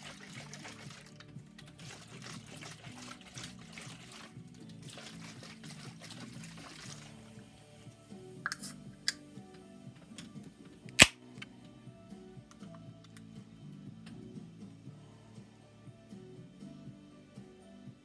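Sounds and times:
liquid sloshing in a shaken can: 0.0s - 7.5s.

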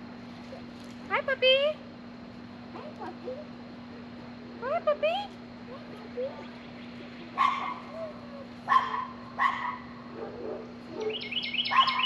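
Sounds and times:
faint hum: 0.0s - 12.0s
dog barking: 7.4s - 8.0s, 8.7s - 12.0s
bird chirping: 11.0s - 12.0s.

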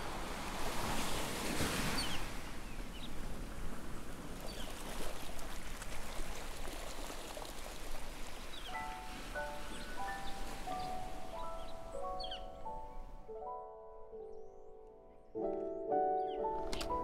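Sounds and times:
ocean surf washing on beach: 0.0s - 11.6s
faint high bird calls: 8.5s - 13.0s.

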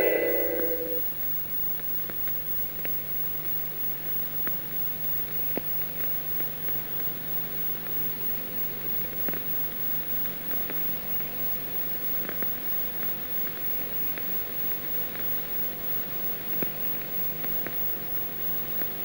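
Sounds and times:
low hum: 0.0s - 1.0s
film soundtrack hiss: 0.0s - 19.0s.

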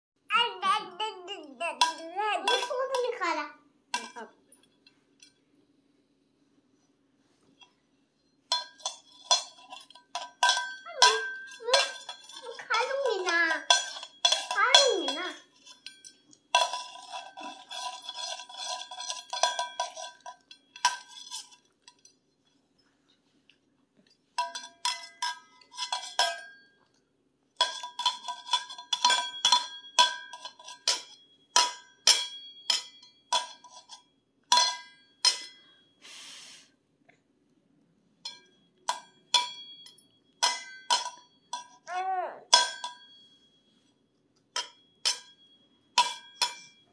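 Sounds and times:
baby's voice: 0.3s - 3.5s, 41.9s - 42.5s
metallic clangs of steel plate: 8.5s - 22.0s, 27.6s - 35.7s, 38.3s - 41.9s, 44.6s - 46.9s.

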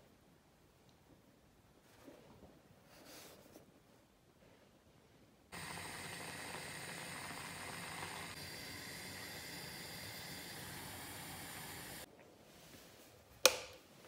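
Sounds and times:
moka pot hissing: 5.5s - 12.1s.

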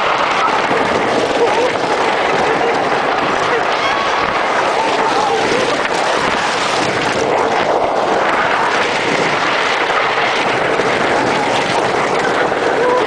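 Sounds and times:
roller coaster track noise: 0.0s - 13.0s
rush of wind: 0.0s - 13.0s.

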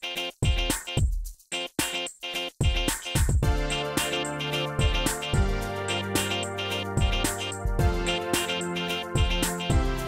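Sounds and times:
instrumental rap beat: 0.0s - 10.0s.

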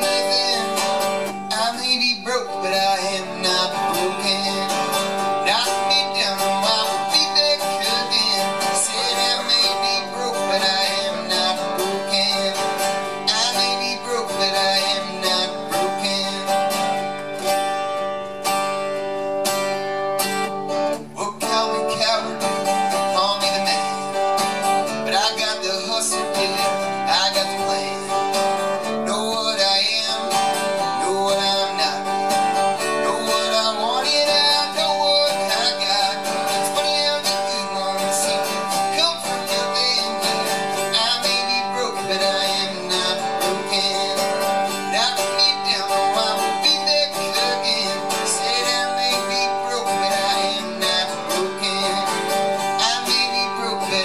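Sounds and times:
man singing into microphone: 0.0s - 17.4s, 20.9s - 54.0s
strummed acoustic guitar: 0.0s - 54.0s.

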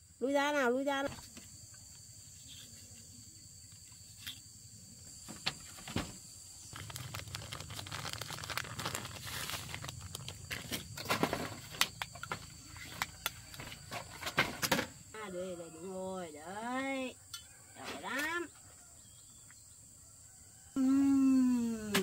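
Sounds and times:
leaves and twigs rustling: 6.6s - 13.1s.

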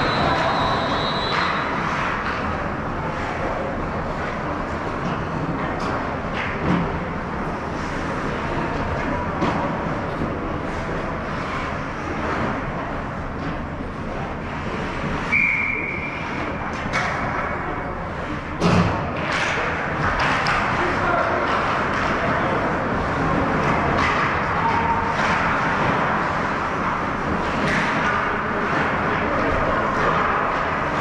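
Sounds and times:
referee's whistle: 0.0s - 1.7s, 15.3s - 16.2s
skates rumbling on ice: 0.0s - 31.0s
sticks and puck clacking: 0.0s - 31.0s.

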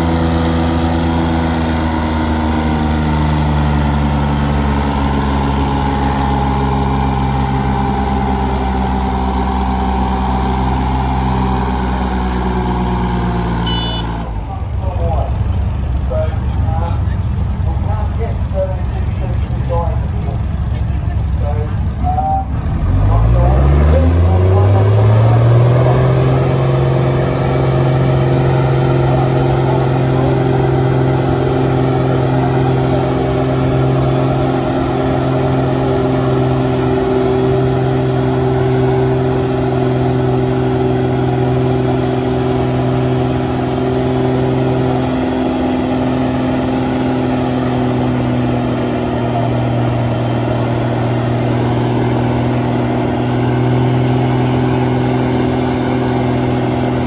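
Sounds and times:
engine revving: 0.0s - 57.0s.

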